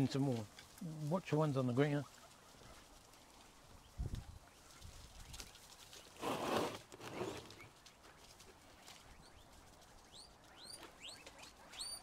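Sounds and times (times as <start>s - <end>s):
rustle: 0.0s - 12.0s
guinea pig chirps: 10.1s - 12.0s.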